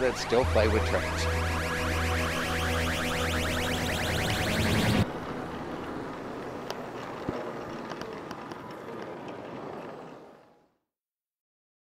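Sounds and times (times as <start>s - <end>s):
model train rolling on track: 5.6s - 10.4s
wheels clicking over rail joints: 5.8s - 10.4s.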